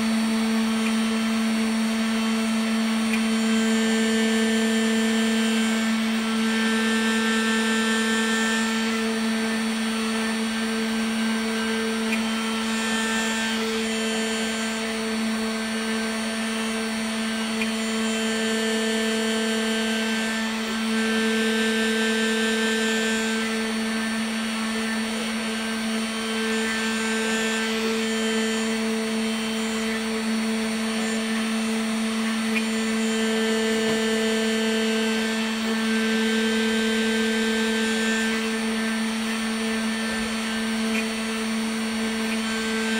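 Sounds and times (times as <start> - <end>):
cutter whining: 0.0 - 42.9
spindle motor humming: 0.0 - 42.9.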